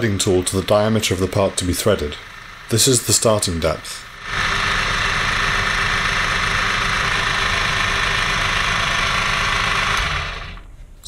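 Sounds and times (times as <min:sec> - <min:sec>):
mini lathe motor whirring: 0:00.0 - 0:10.6.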